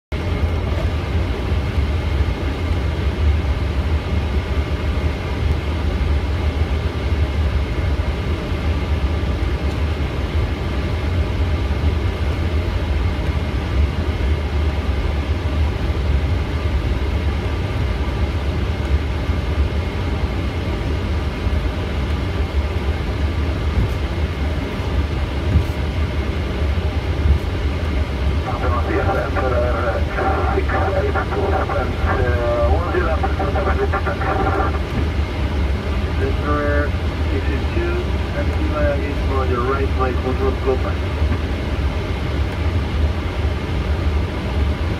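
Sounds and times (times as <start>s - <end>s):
jet engines idling low rumble: 0.1s - 44.9s
faint even whine: 19.9s - 42.8s.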